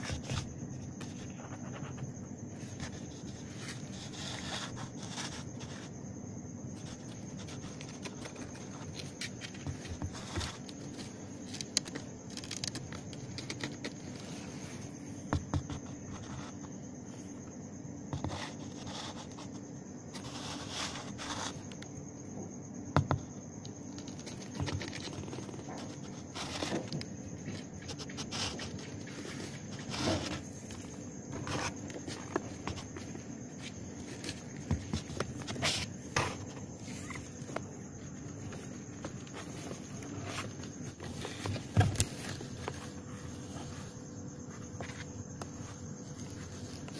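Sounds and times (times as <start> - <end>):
kitten claws scratching cardboard: 6.8 - 14.6.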